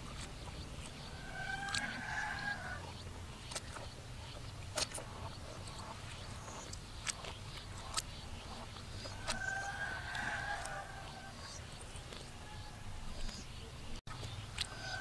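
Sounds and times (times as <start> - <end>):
rooster crowing: 9.2 - 11.4.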